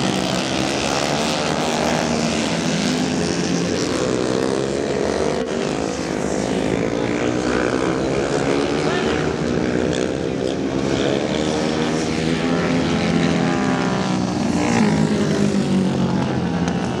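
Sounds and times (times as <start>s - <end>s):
motorcycle engines racing: 0.0s - 17.0s.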